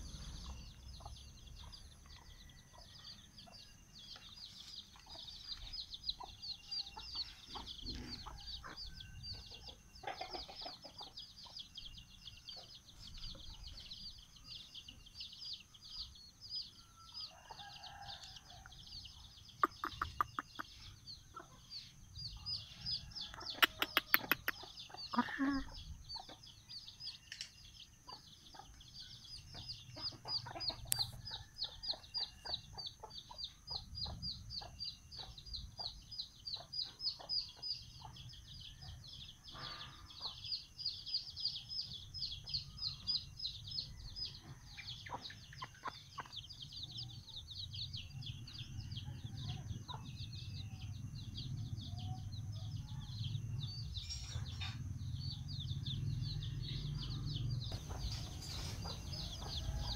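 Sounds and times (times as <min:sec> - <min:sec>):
chicks peeping: 0:00.0 - 0:59.9
hen clucking softly: 0:19.6 - 0:21.6, 0:23.3 - 0:26.4.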